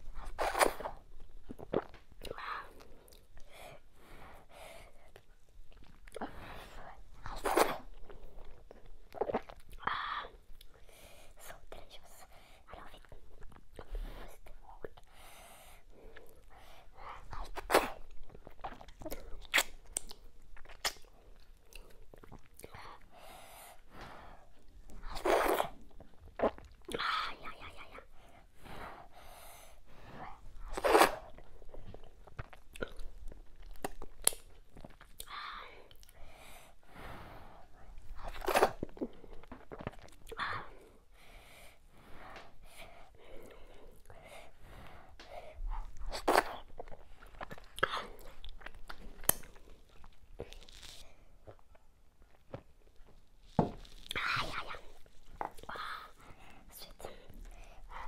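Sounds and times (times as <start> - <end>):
wet mouth noises and chewing: 0.0 - 3.7, 5.0 - 10.8, 12.8 - 15.1, 16.1 - 23.1, 24.5 - 28.4, 30.4 - 36.4, 37.8 - 40.9, 42.3 - 58.0.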